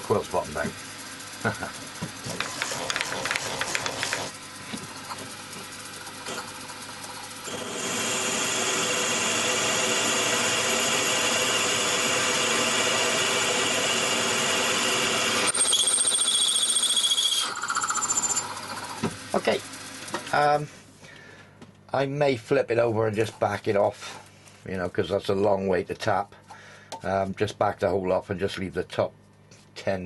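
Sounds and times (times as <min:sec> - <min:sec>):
drill spindle whine: 0:05.1 - 0:20.3.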